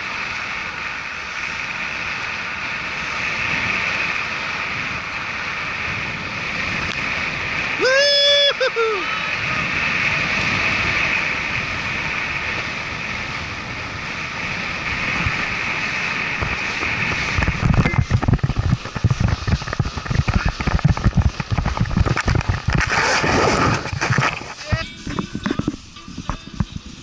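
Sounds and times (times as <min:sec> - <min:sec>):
wind rushing over microphone: 0:00.0 - 0:27.0
low thumps and buffeting: 0:09.7 - 0:27.0.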